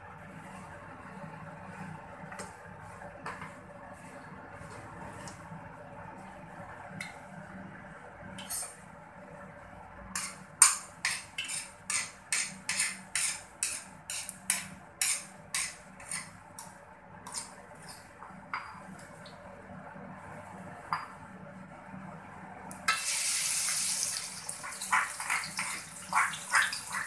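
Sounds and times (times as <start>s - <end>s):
hot oil crackling and popping: 22.9s - 27.0s.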